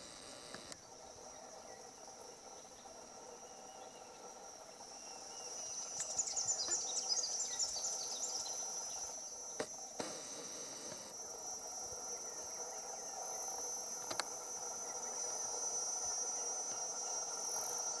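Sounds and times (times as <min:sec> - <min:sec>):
insects trilling: 0:00.0 - 0:18.0
sharp clicks: 0:00.2 - 0:00.8, 0:09.6 - 0:11.1, 0:14.0 - 0:14.3.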